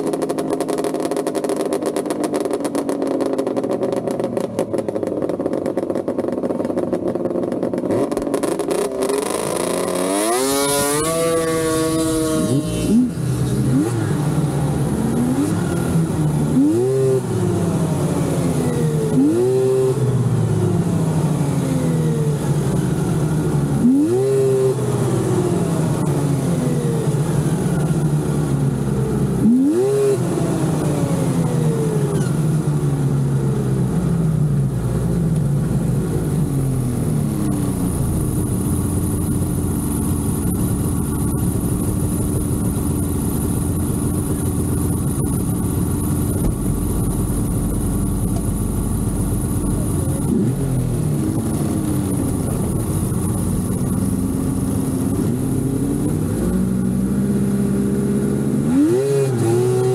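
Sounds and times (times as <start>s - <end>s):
snowmobile engine revving: 7.7s - 32.6s, 49.1s - 59.9s.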